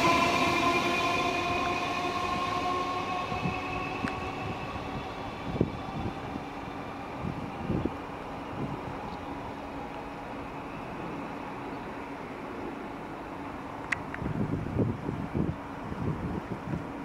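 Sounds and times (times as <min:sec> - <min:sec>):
electric train whine: 0:00.0 - 0:17.0.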